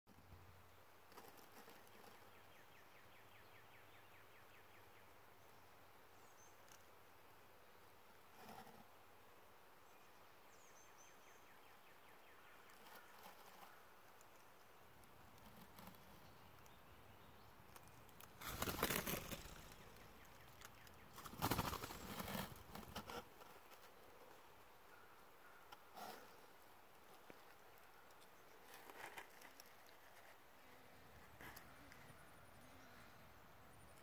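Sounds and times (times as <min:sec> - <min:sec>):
leaves rustling: 0:12.4 - 0:32.2
bird wings flapping: 0:18.4 - 0:20.0, 0:21.2 - 0:23.0.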